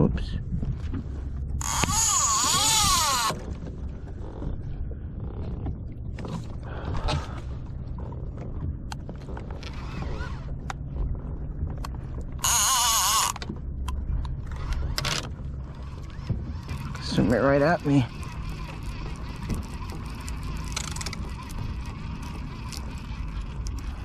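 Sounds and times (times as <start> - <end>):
fishing reel drag buzzing: 1.6 - 3.4, 12.4 - 13.4, 15.9 - 24.0
reel winding and creaks: 1.6 - 4.5, 9.3 - 10.6, 12.4 - 13.5, 14.4 - 24.0.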